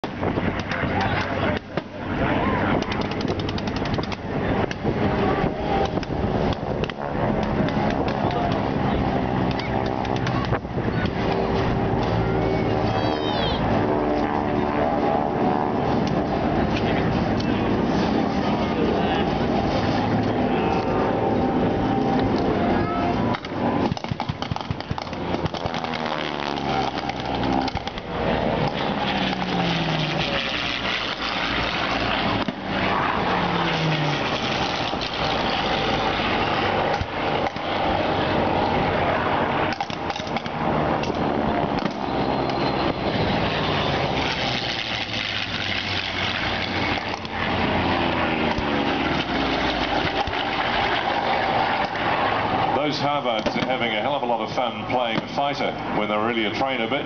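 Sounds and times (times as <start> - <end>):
piston aircraft engines passing low: 0.0 - 57.0
pyrotechnic bangs: 23.5 - 33.5.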